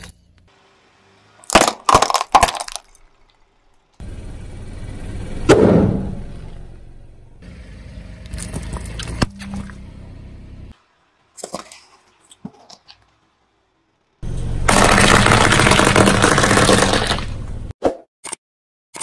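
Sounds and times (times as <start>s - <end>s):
brittle things crunching under tyre: 1.4s - 4.0s, 8.2s - 9.8s, 14.7s - 17.5s
sharp cracks: 14.7s - 17.4s.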